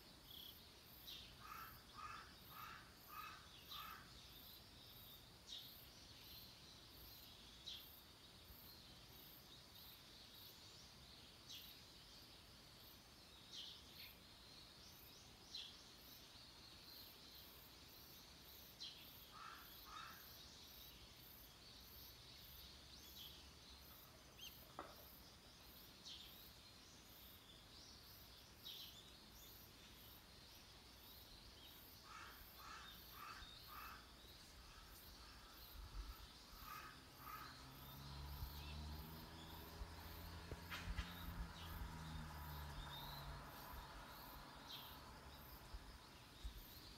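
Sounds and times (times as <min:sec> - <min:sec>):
insect chirping: 0:00.0 - 0:46.9
birds calling: 0:32.0 - 0:46.9.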